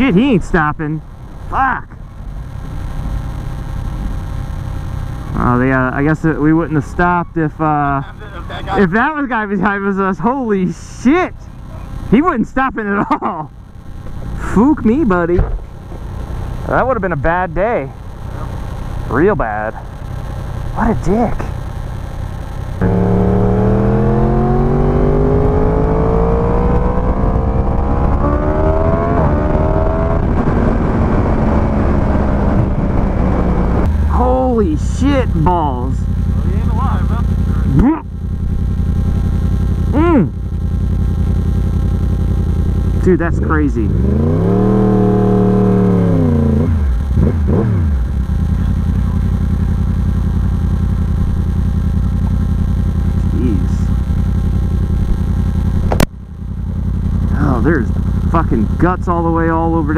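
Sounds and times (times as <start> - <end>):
motorcycle engine accelerating: 0.0 - 59.9
throttle blips: 22.8 - 27.5.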